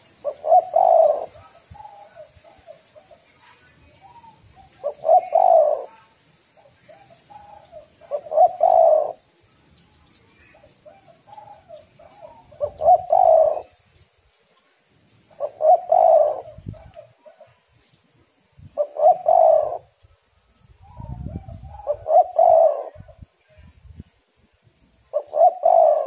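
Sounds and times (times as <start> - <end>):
dove cooing: 0.0 - 9.3, 10.6 - 13.8, 15.3 - 17.6, 18.7 - 20.0, 20.8 - 23.3, 25.1 - 26.0.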